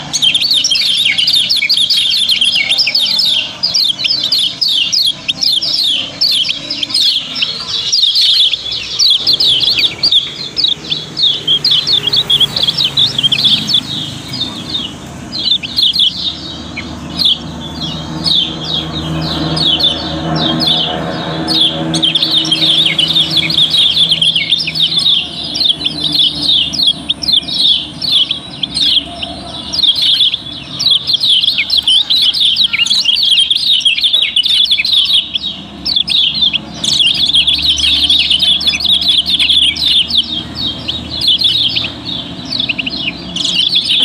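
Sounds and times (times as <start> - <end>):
birds chirping: 0.0 - 44.0.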